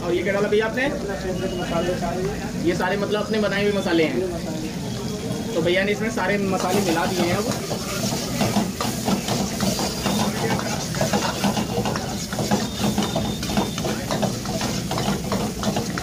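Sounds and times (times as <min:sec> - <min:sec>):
food sizzling: 0:00.0 - 0:16.0
metal ladle scraping wok: 0:06.5 - 0:16.0
ladle clicking against pan: 0:06.6 - 0:16.0.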